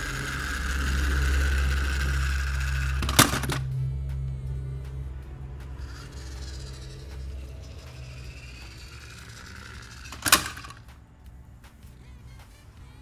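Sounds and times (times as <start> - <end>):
plastic toy clattering into bin: 3.0 - 3.6, 9.9 - 10.8.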